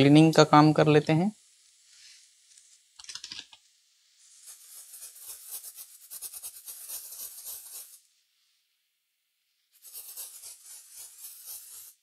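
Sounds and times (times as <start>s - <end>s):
small brush scrubbing: 1.5s - 2.9s, 4.2s - 8.1s, 9.7s - 12.0s.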